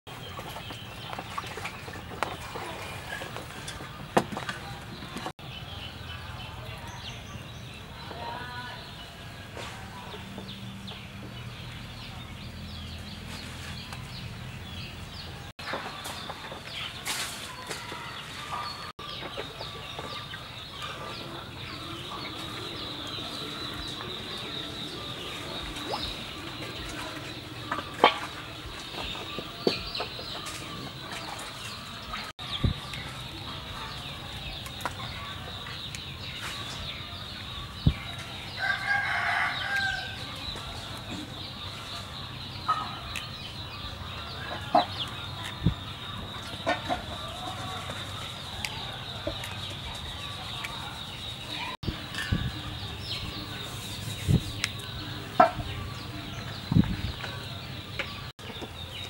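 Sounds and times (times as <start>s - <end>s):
chickens clucking: 0.1s - 5.4s, 9.0s - 59.0s
rooster crowing: 38.6s - 40.3s.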